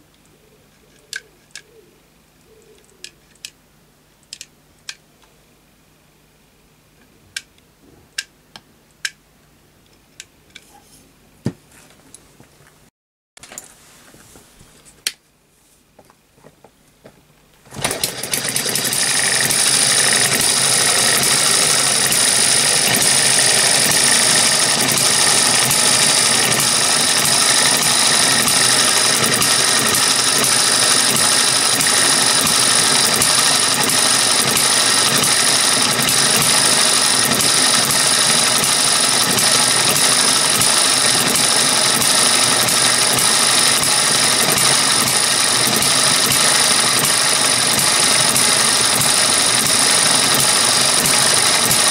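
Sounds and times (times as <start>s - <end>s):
sharp clicks: 4.2s - 5.0s
model gas engine running: 17.7s - 51.9s.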